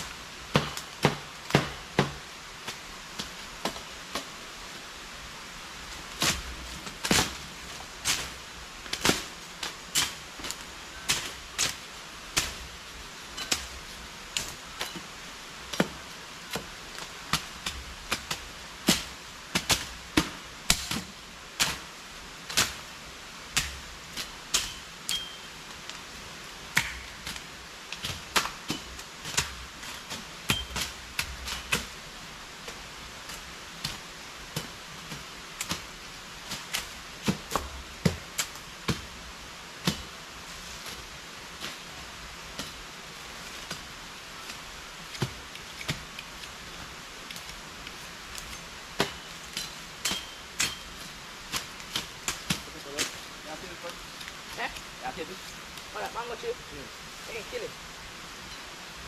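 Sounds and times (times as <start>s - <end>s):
machetes chopping brush: 0.5s - 2.8s, 8.0s - 12.7s, 13.4s - 21.9s, 22.5s - 22.9s, 23.5s - 25.9s, 26.7s - 32.0s, 32.7s - 39.1s, 39.8s - 42.8s, 43.4s - 56.4s.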